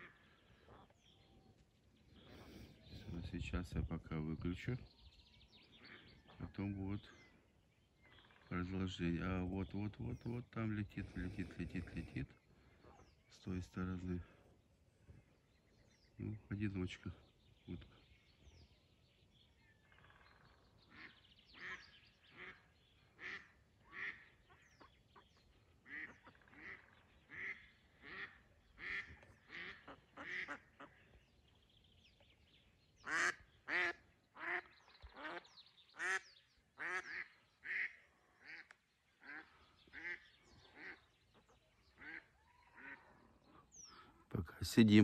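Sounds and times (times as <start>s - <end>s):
duck quacking: 20.9s - 24.6s, 25.9s - 31.0s, 33.1s - 35.4s, 36.0s - 36.2s, 36.8s - 41.0s, 41.9s - 44.3s.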